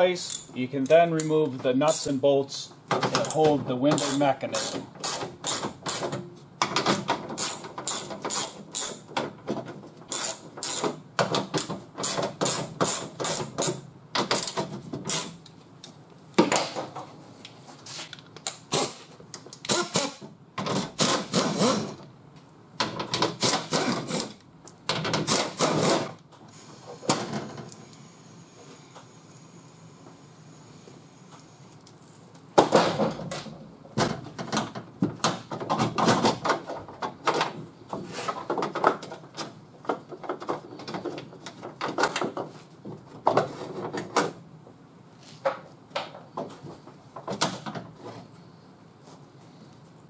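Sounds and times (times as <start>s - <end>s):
pneumatic tool rapid clicking: 4.0s - 6.1s, 7.4s - 9.0s, 10.1s - 15.4s, 19.7s - 20.2s.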